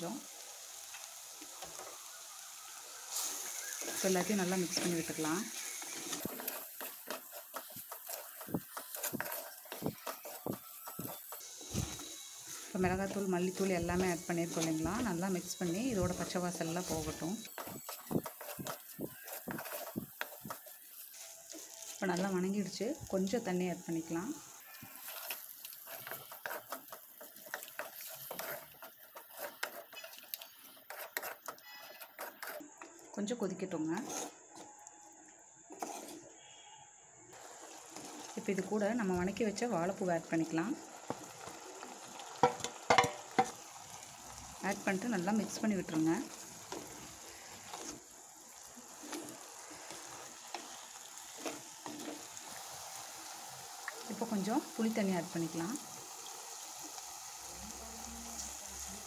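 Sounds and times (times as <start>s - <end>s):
faint sizzle: 0.0s - 59.0s
spatula scraping a pan: 3.0s - 22.3s, 24.4s - 32.8s, 33.9s - 34.6s, 35.7s - 36.6s, 37.4s - 39.4s, 40.9s - 55.0s
ladle knocking and scraping pan: 42.4s - 43.6s.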